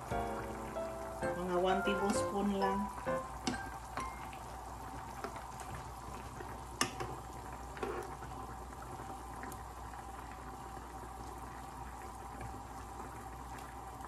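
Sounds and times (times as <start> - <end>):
curry bubbling in a pan: 3.0 - 14.0.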